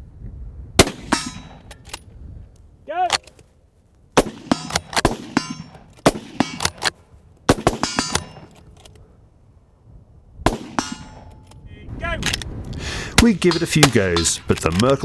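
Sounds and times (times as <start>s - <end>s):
rifle shots: 0.8s - 1.7s, 4.2s - 8.5s, 10.5s - 11.4s, 13.2s - 14.8s
metallic clacks of rifle bolts: 1.1s - 2.1s, 3.0s - 3.5s, 4.5s - 7.0s, 7.7s - 9.1s, 10.8s - 11.6s, 12.2s - 12.5s, 13.3s - 15.0s.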